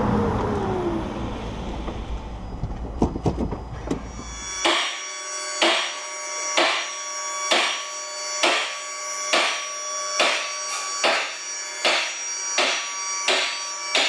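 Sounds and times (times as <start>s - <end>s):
car lift motor hum: 0.0s - 4.6s.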